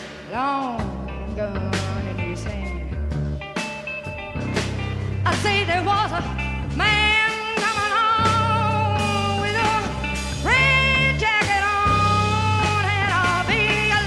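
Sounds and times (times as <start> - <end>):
psychedelic rock music: 0.0 - 14.0.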